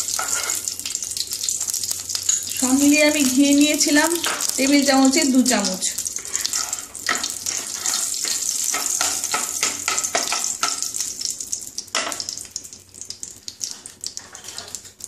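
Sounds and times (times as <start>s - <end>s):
ghee sizzling in hot oil: 0.0s - 15.0s
wooden spatula scraping pan: 0.1s - 0.7s, 6.2s - 10.4s, 14.2s - 14.8s.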